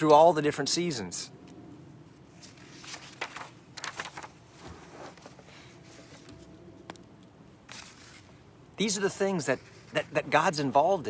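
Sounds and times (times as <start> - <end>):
leaves rustling: 2.0 - 6.6, 7.6 - 11.0.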